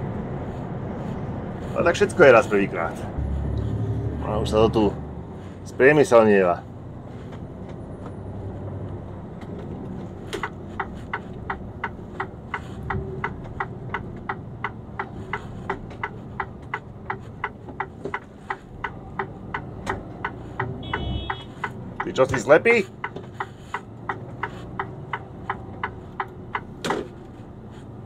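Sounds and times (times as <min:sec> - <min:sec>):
truck engine humming: 0:00.0 - 0:28.0
turn signal ticking: 0:05.7 - 0:28.0.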